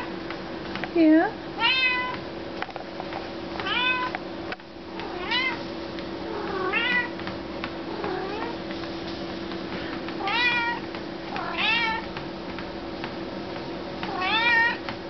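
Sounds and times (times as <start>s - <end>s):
treadmill motor hum: 0.0s - 15.0s
cat meowing: 1.6s - 2.2s, 3.6s - 4.1s, 5.1s - 5.6s, 6.3s - 7.2s, 10.2s - 10.8s, 11.4s - 12.0s, 14.1s - 14.8s.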